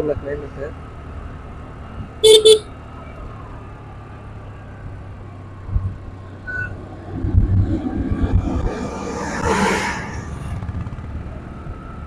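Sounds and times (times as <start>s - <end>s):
vehicle horn beeping: 2.2s - 2.7s
motorbike running noise: 5.5s - 12.0s.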